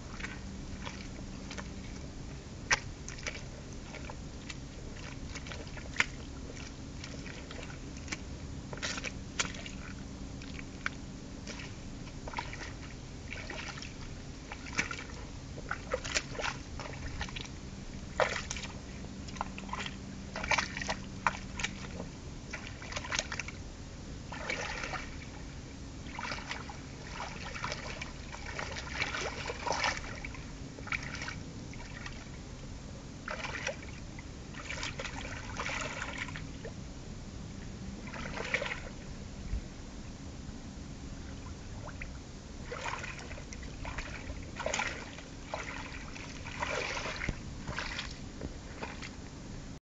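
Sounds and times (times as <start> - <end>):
boots squelching in mud: 2.7 - 17.5, 18.1 - 23.5, 26.1 - 31.4, 42.7 - 49.2.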